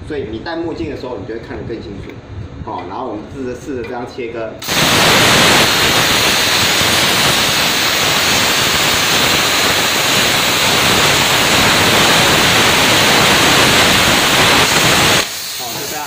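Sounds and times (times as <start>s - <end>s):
plasma cutter hissing: 4.6s - 16.0s.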